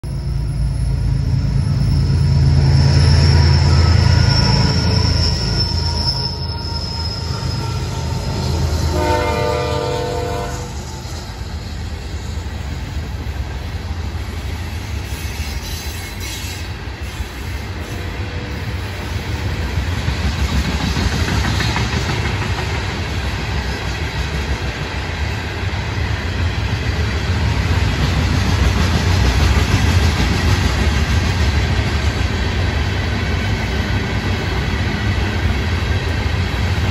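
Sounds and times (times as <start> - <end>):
diesel locomotives running: 0.0 - 36.9
high wheel squeal: 0.1 - 11.8
train horn blast: 7.2 - 10.9.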